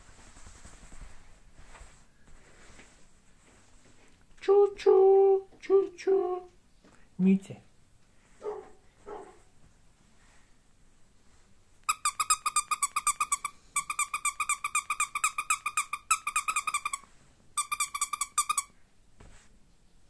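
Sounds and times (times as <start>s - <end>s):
squeaky toy squeaking: 11.9s - 18.7s.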